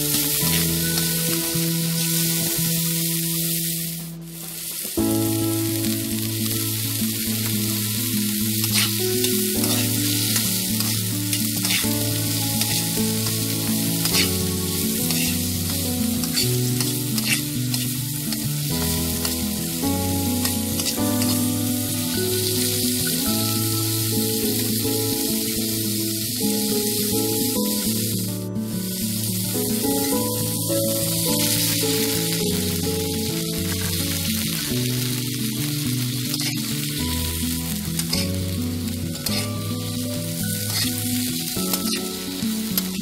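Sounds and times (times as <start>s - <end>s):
background music: 0.0s - 43.0s
food sizzling in oil: 0.0s - 43.0s
utensil scraping pan: 11.6s - 12.0s, 14.0s - 14.4s, 15.0s - 15.4s, 16.3s - 18.0s, 36.3s - 36.6s, 39.2s - 39.5s, 40.7s - 41.0s.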